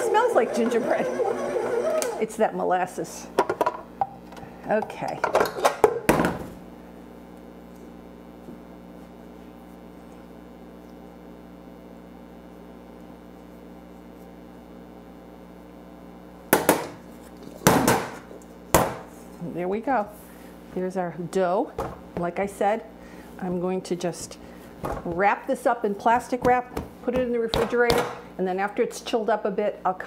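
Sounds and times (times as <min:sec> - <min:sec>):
steady low hum: 0:06.4 - 0:30.0.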